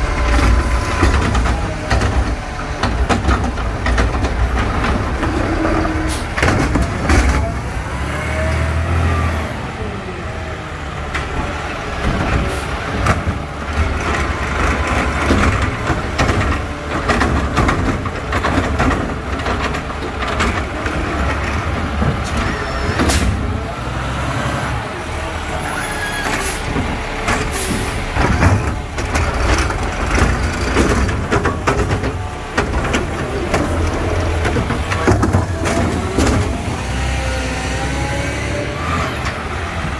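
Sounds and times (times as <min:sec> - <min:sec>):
hydraulic arm and plastic carts knocking: 0:00.0 - 0:07.6, 0:11.2 - 0:23.6, 0:26.2 - 0:37.2
garbage truck diesel engine running: 0:00.0 - 0:39.9.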